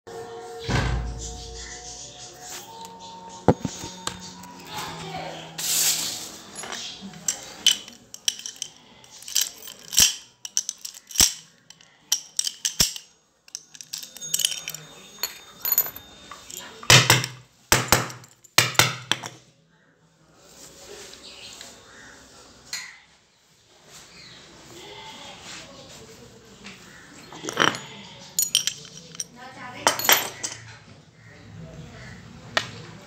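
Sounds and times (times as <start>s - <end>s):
metallic padlock clicks and clinks: 6.6s - 19.4s, 28.4s - 30.6s.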